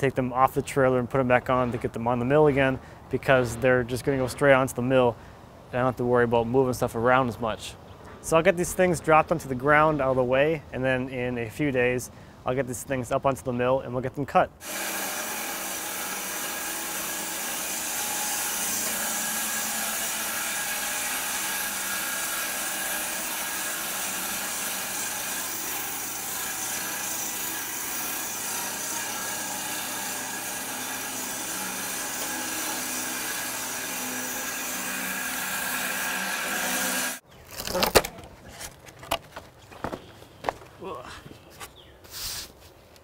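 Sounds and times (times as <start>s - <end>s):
bandsaw cutting wood: 14.6s - 38.1s.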